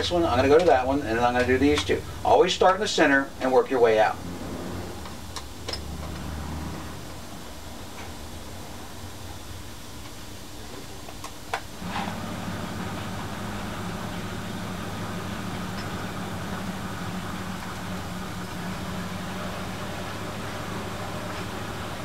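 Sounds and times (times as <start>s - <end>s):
machine hum with low drone: 11.8s - 22.0s.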